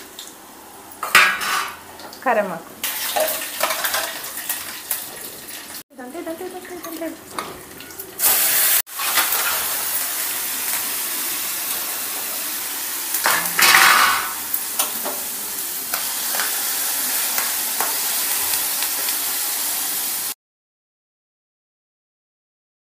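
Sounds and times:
hot oil sizzling: 0.0s - 20.4s.

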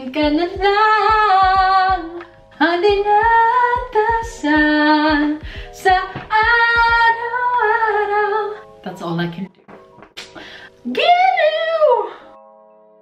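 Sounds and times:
woman singing unaccompanied: 0.0s - 8.6s.

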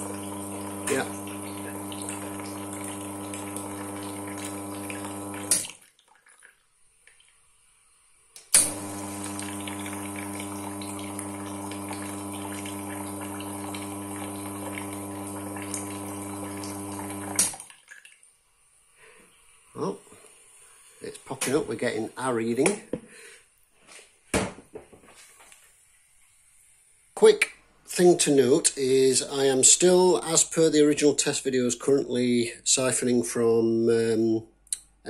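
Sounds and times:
espresso machine pump humming: 0.0s - 5.6s, 8.6s - 17.5s
water hissing: 0.0s - 5.8s, 8.6s - 17.6s.

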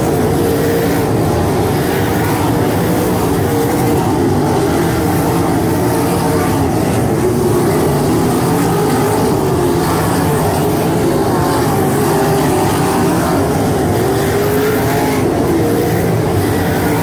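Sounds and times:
racing car engines: 0.0s - 17.0s.

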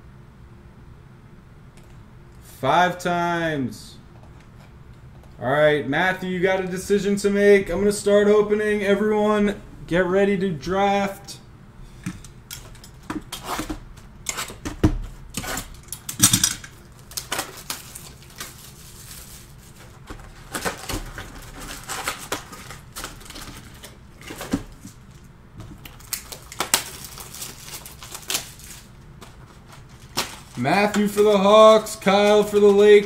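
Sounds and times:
cardboard and plastic rustling: 12.0s - 16.0s, 16.7s - 33.0s.

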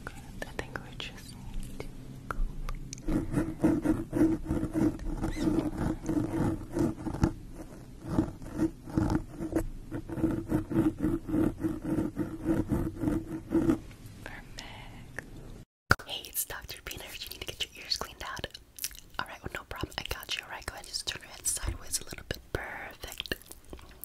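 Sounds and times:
cotton swab rubbing microphone: 3.0s - 13.8s.

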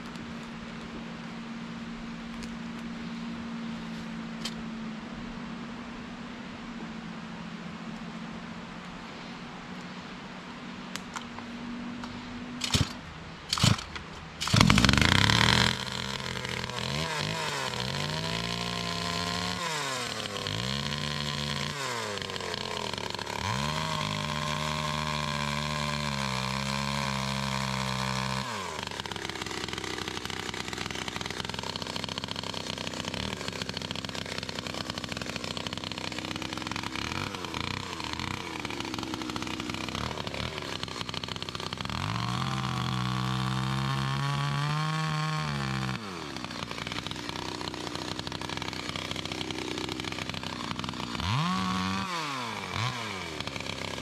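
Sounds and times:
chainsaw engine revving: 12.0s - 54.0s.

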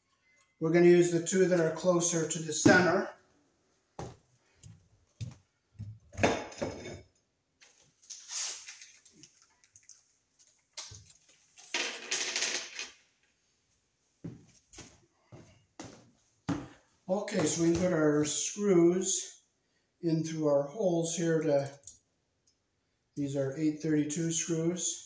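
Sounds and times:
small objects clicking and rattling: 8.0s - 13.0s.

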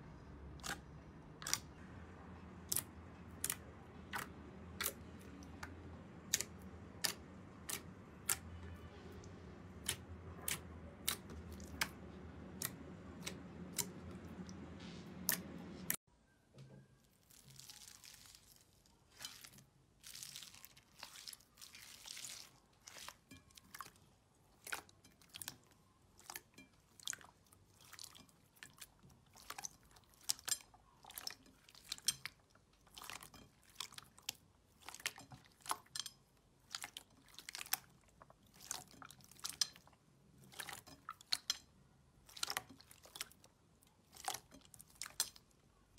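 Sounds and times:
steady low hum: 0.0s - 16.0s
crunchy slime squishing: 0.5s - 1.8s, 17.0s - 45.6s.

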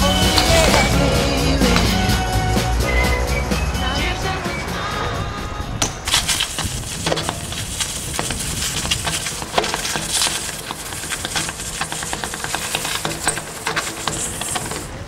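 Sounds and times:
tyres scuffing on stone: 0.0s - 2.2s, 6.1s - 15.0s
bike clicks and rattles: 5.8s - 15.0s.

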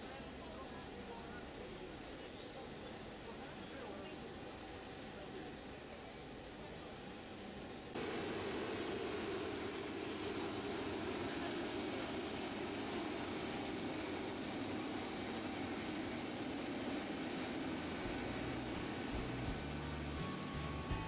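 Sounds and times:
jet aircraft rush and whine: 7.4s - 21.0s.

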